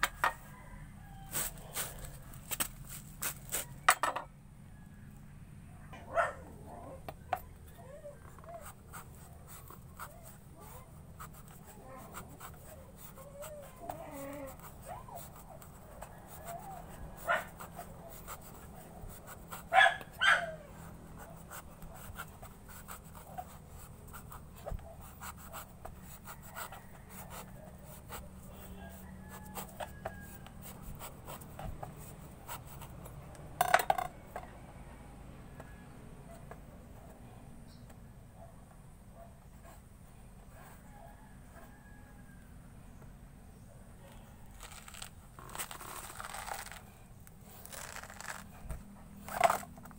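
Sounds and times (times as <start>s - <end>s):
knife scoring fruit rind: 21.2s - 34.2s.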